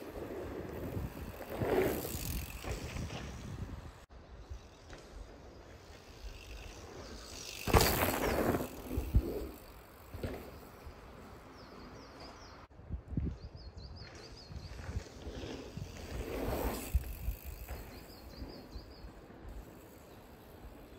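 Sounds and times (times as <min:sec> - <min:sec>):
bike tyres on dirt: 0:00.0 - 0:20.9
bird singing: 0:10.4 - 0:12.7, 0:17.6 - 0:19.3.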